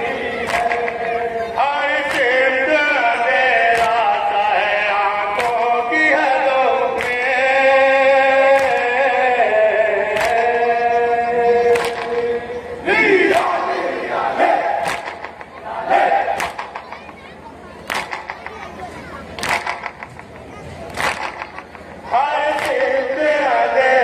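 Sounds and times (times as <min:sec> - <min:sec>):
man chanting into microphone: 0:00.0 - 0:14.8, 0:22.1 - 0:24.0
chest-beating slaps: 0:11.7 - 0:12.3, 0:14.8 - 0:15.6, 0:16.3 - 0:17.1, 0:17.8 - 0:18.6, 0:19.4 - 0:21.9.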